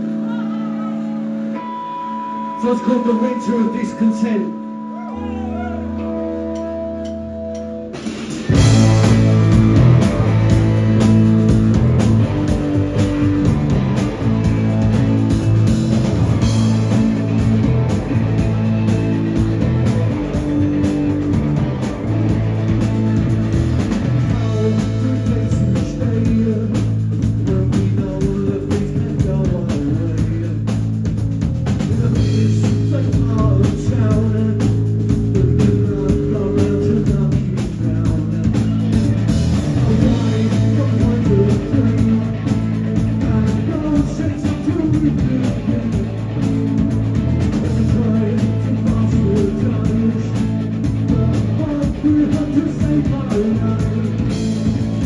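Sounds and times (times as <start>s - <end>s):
bass guitar: 0.0s - 55.0s
distorted electric guitars: 0.0s - 55.0s
man singing: 2.4s - 6.3s, 24.2s - 30.8s, 31.9s - 46.6s, 47.3s - 55.0s
drum kit beat: 2.7s - 55.0s.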